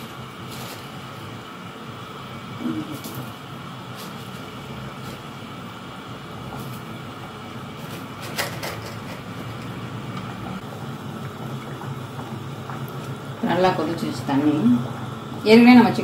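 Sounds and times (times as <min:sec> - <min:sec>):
liquid simmering hiss: 0:00.0 - 0:16.0.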